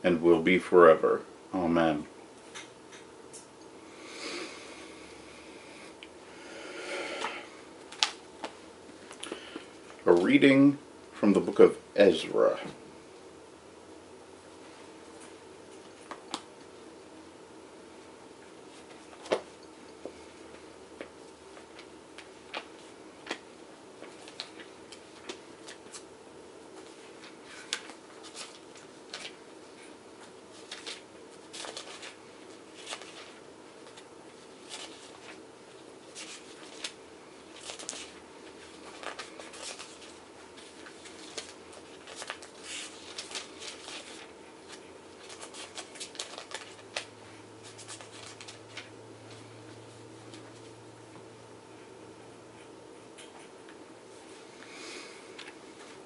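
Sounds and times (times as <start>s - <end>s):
faint hum: 0.0s - 56.0s
book pages turning: 7.9s - 10.4s, 18.7s - 19.5s, 24.0s - 26.1s, 26.8s - 29.4s, 30.2s - 35.4s, 36.1s - 49.5s.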